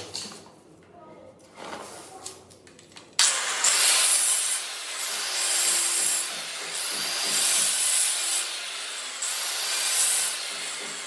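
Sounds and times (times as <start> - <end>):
stone cutter grinding: 3.5 - 11.0.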